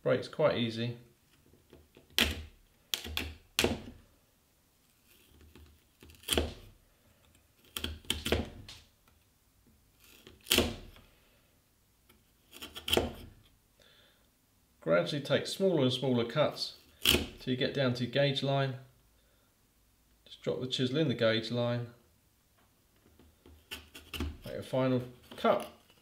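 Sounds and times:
wood cracking under chisel: 1.3s - 4.0s, 5.3s - 9.2s, 10.0s - 11.1s, 12.1s - 13.5s, 16.9s - 17.4s, 23.1s - 24.5s.

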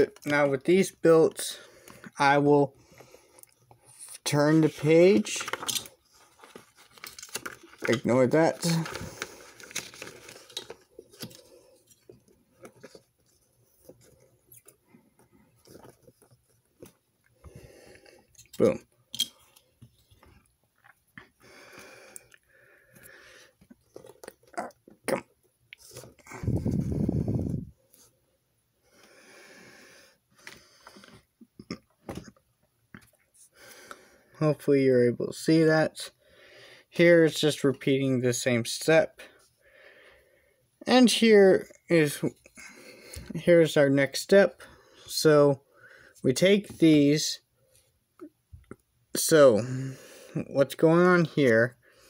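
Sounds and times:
paper rustling: 4.6s - 14.8s.

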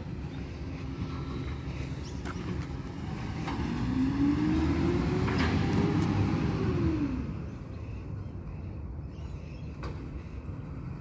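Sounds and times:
diesel engine revving: 0.0s - 7.7s.

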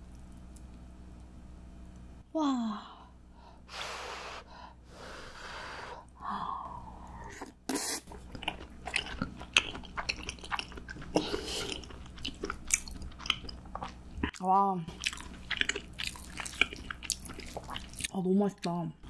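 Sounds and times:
breathy puffs of air: 3.3s - 7.0s
moist chewing with clicks: 15.0s - 18.2s.

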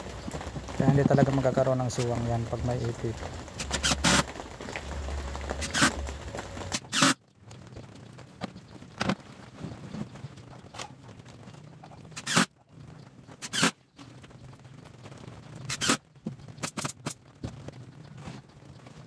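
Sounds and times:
low steady hum: 0.0s - 8.4s.

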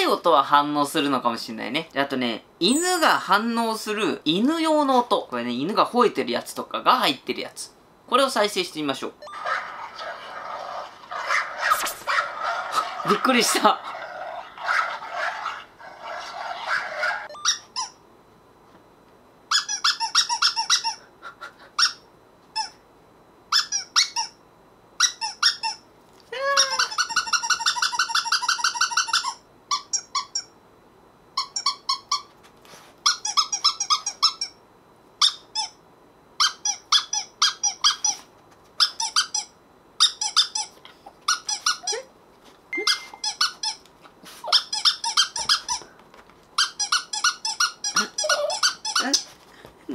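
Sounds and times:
large dog barking: 9.4s - 17.3s
squeaky toy squeaking: 14.6s - 18.0s, 19.5s - 21.0s, 22.6s - 22.8s, 23.5s - 24.4s, 25.0s - 25.8s, 26.6s - 30.5s, 31.4s - 32.3s, 33.0s - 34.6s, 35.2s - 35.8s, 36.4s - 38.2s, 38.8s - 42.1s, 42.8s - 43.8s, 44.4s - 45.8s, 46.6s - 49.3s.

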